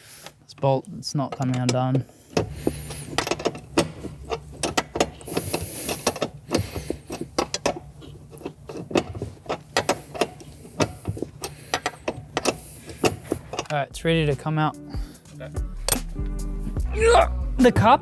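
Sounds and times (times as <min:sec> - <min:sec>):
tool clicking and knocking on metal: 0:01.2 - 0:13.8
man breathing heavily: 0:02.1 - 0:03.4, 0:05.2 - 0:07.4, 0:09.9 - 0:13.5, 0:14.8 - 0:15.8.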